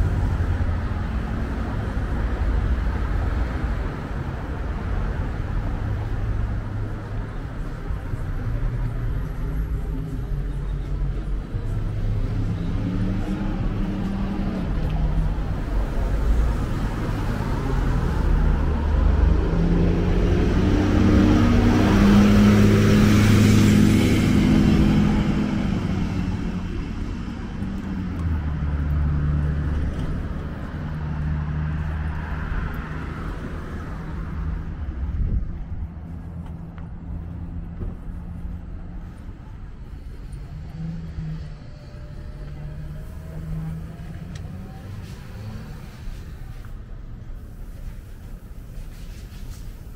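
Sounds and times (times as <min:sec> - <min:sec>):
low traffic engine hum: 0:00.0 - 0:49.9
vehicle passing by: 0:11.0 - 0:46.8.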